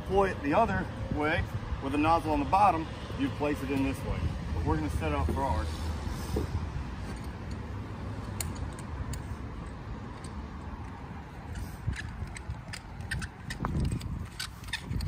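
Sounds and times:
hose couplings clicking and knocking: 7.0s - 15.0s.

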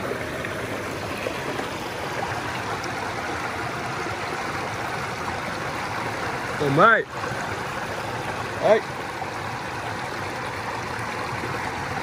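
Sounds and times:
stream water running over rocks: 0.0s - 12.0s.

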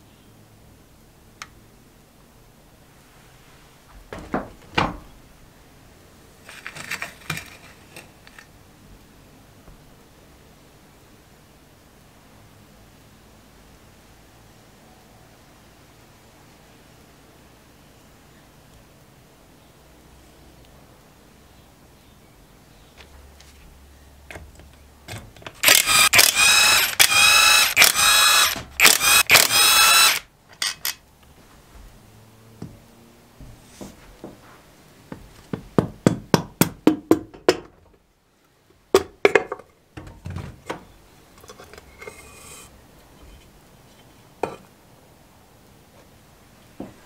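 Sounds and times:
power driver rattling: 25.6s - 31.0s.

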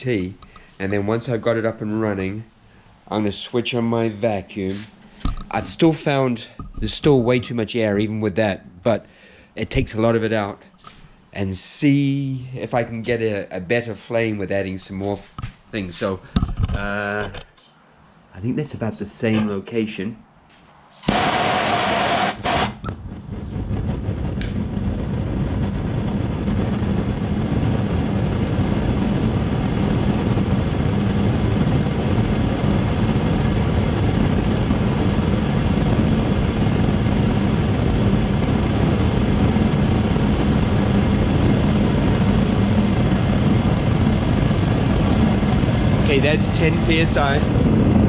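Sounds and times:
gas burner roaring: 0.0s - 7.2s, 20.9s - 48.0s.

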